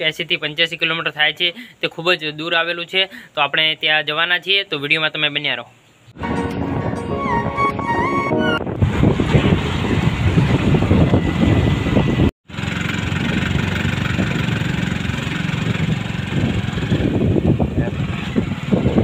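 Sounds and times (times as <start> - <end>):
intro music: 6.2 - 8.8
vehicle engine and road rumble: 8.6 - 19.0.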